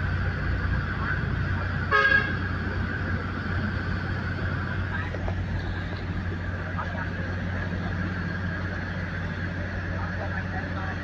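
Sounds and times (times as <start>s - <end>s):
diesel engine running: 0.0s - 11.0s
horn toot: 1.9s - 2.4s.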